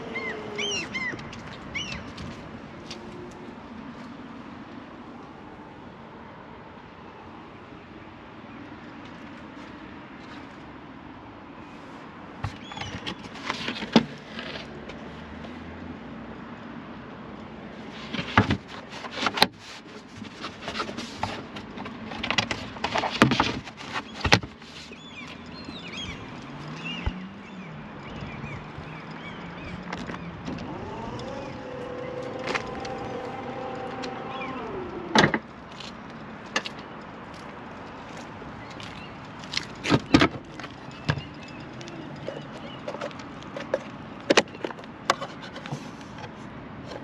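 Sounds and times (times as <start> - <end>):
plastic panel clattering and knocking: 20.8 - 24.5
electric tailgate motor whining: 30.6 - 35.4.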